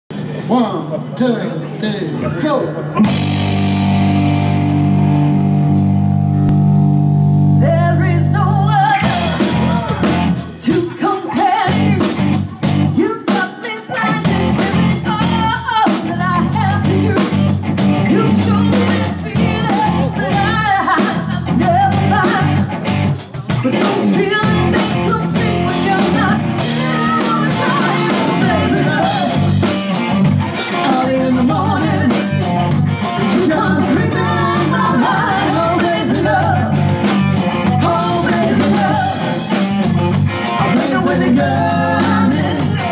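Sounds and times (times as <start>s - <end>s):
live rock band playing: 2.3s - 42.9s
drum kit beat: 3.0s - 42.9s
woman singing: 7.6s - 12.2s, 13.0s - 17.4s, 18.0s - 22.7s, 23.5s - 29.5s, 30.8s - 32.4s, 33.2s - 36.8s, 37.6s - 39.6s, 40.7s - 42.9s.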